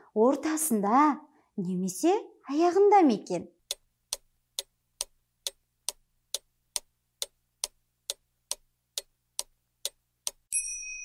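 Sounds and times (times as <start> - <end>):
clock ticking: 3.6 - 10.5
bright bell ding: 10.5 - 11.0.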